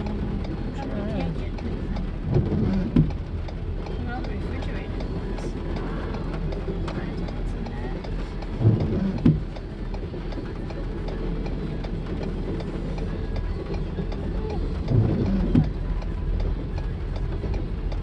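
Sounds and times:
raindrops ticking on windshield: 0.0s - 18.0s
train wheels rumbling on rails: 0.0s - 18.0s
heavy train clunks: 8.6s - 9.5s.

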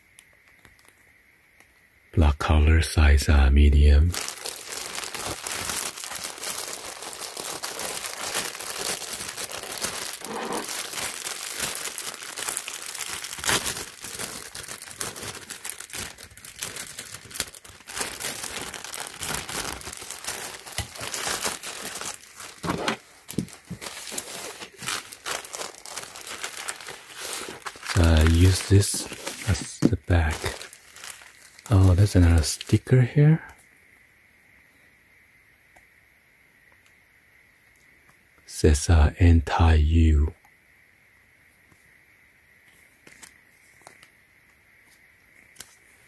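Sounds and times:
plastic bag crinkling: 3.3s - 32.8s.

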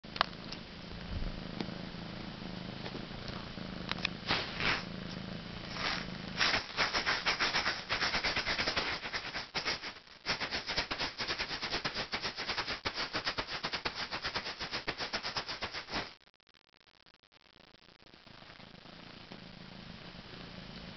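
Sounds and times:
maraca rattling: 5.7s - 16.1s.

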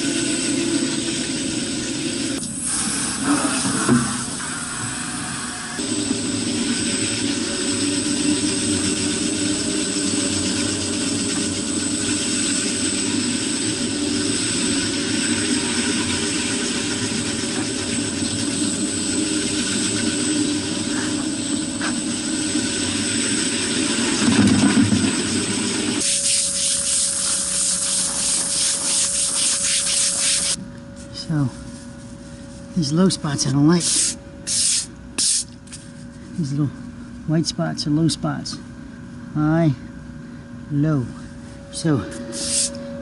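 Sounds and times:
pressure washer spraying: 0.0s - 24.1s, 26.0s - 30.6s, 33.8s - 35.6s, 42.3s - 42.8s
concrete floor grinder: 4.8s - 30.4s.

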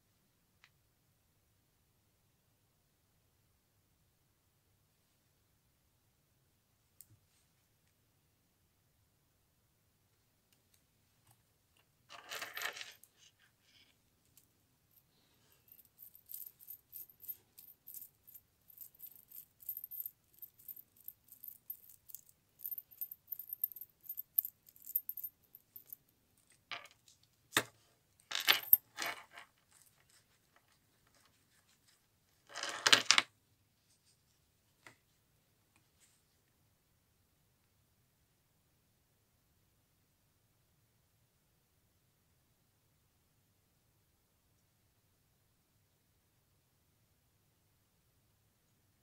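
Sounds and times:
bracelet charms jingling: 14.9s - 26.1s, 28.4s - 29.2s.

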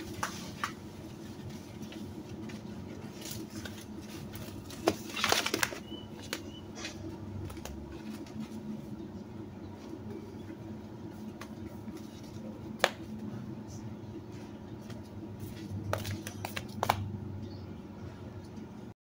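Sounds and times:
low hum: 0.0s - 18.9s.

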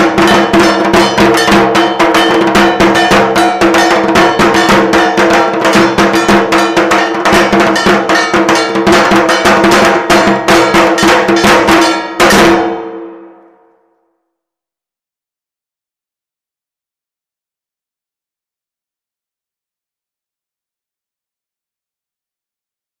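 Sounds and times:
metal bell percussion struck rapidly: 0.0s - 13.4s.

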